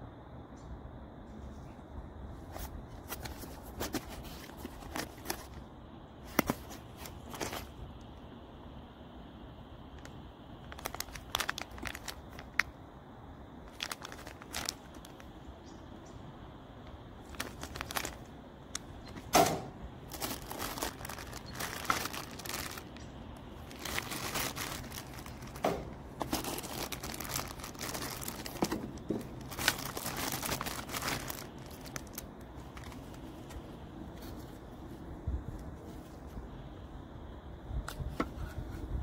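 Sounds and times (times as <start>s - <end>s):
plastic bags crinkling: 3.0s - 5.6s, 6.2s - 7.8s, 10.0s - 12.7s, 13.6s - 15.4s, 17.2s - 19.3s, 20.0s - 33.6s.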